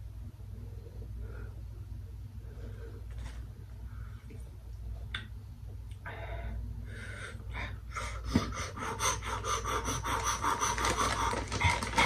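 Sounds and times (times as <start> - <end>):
woman breathing hard and panting: 6.1 - 12.0.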